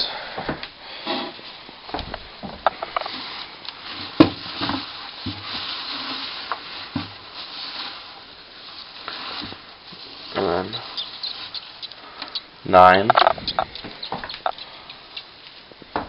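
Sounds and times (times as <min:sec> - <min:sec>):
shredded paper rustling: 0:03.0 - 0:11.8.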